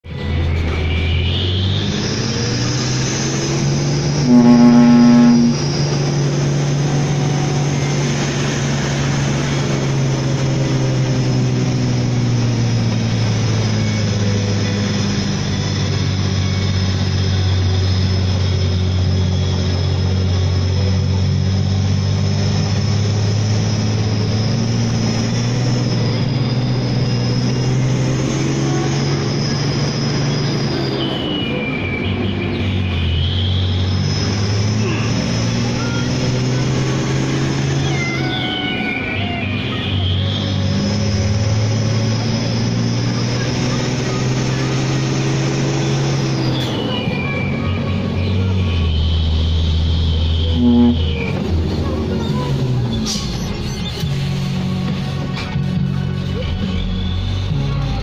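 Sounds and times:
truck diesel engine running: 0:00.0 - 0:58.0
truck horn blast: 0:03.4 - 0:08.4, 0:49.9 - 0:51.8.

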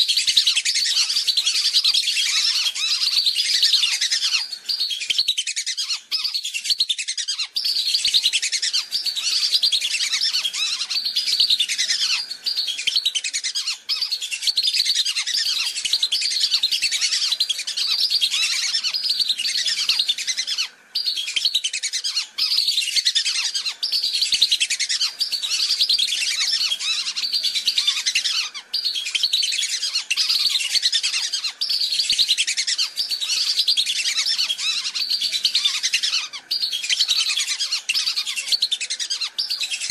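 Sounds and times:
whistling ducks calling: 0:00.0 - 0:39.9.

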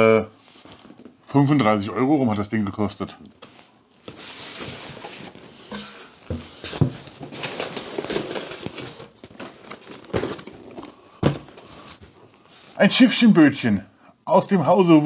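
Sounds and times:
cardboard rustling and scraping: 0:00.4 - 0:01.2, 0:03.4 - 0:12.8.

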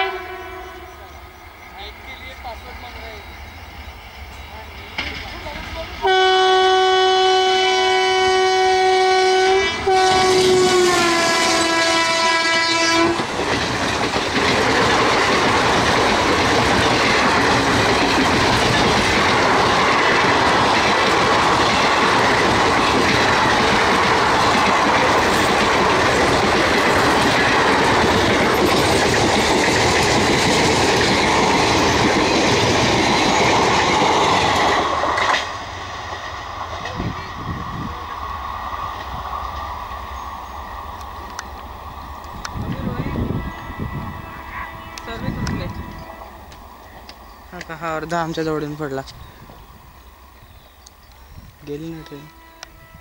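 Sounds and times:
locomotive horn blast: 0:00.0 - 0:01.2, 0:06.0 - 0:13.3, 0:43.1 - 0:46.4, 0:52.1 - 0:53.0
train wheels rumbling on rails: 0:00.0 - 0:53.0.

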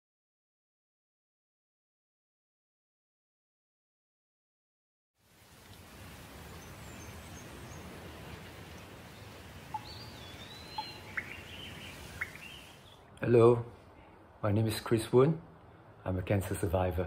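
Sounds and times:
steady low hiss: 0:05.2 - 0:17.0
bird chirps: 0:06.4 - 0:13.0.

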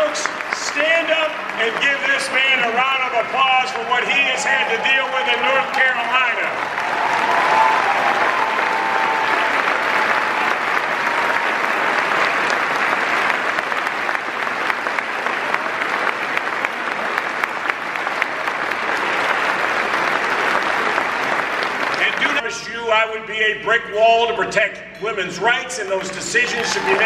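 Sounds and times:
large audience applauding: 0:00.0 - 0:22.5, 0:26.0 - 0:27.0.

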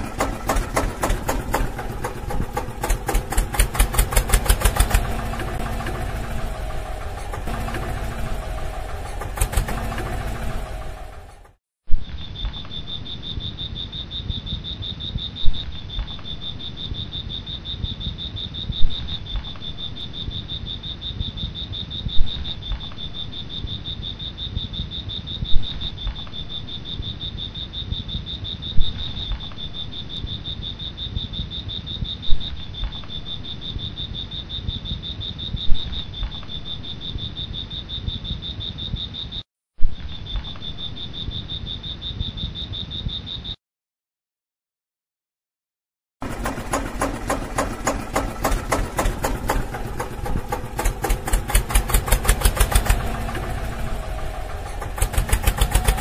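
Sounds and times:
low rushing noise: 0:00.0 - 0:11.6.

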